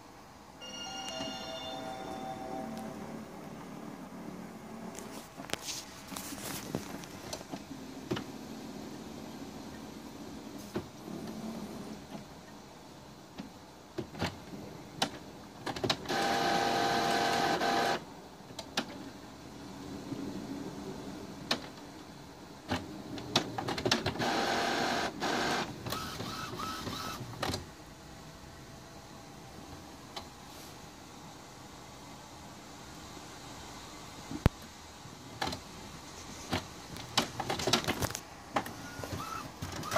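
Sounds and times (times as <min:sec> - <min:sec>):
printer motor whirring: 0:16.1 - 0:18.0, 0:24.2 - 0:27.5, 0:38.0 - 0:39.9.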